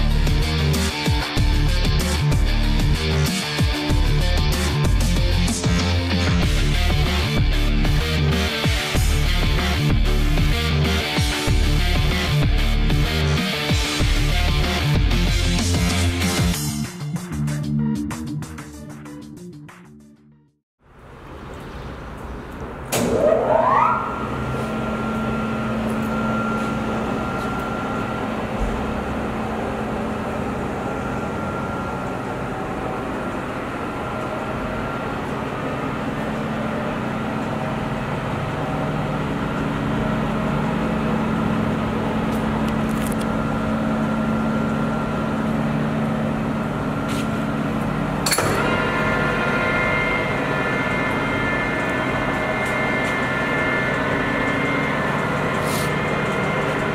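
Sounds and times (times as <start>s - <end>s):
lathe whining and humming: 22.7s - 56.9s.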